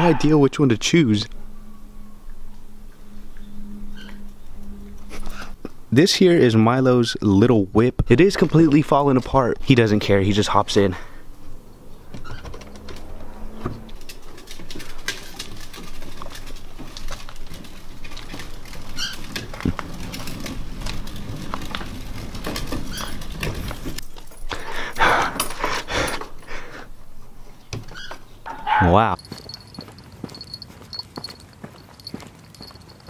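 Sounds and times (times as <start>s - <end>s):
clicks taps and rustles: 13.7s - 26.4s, 29.0s - 33.0s.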